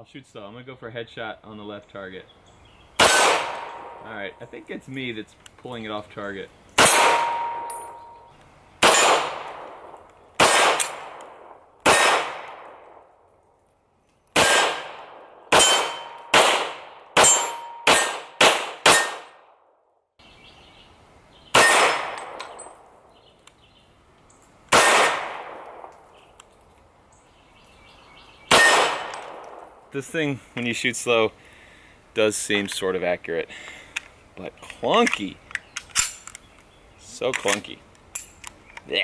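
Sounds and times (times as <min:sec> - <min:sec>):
pistol shots: 0:03.0 - 0:04.1, 0:06.8 - 0:08.1, 0:08.8 - 0:13.0, 0:14.4 - 0:19.5, 0:21.5 - 0:22.6, 0:24.7 - 0:26.0, 0:28.5 - 0:29.8
steel targets ringing: 0:06.8 - 0:08.3, 0:15.6 - 0:16.4, 0:17.2 - 0:18.2.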